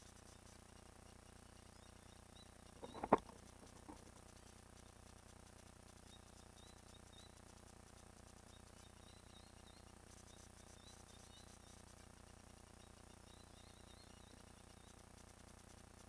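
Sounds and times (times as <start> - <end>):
faint high chirps: 8.4 - 15.2.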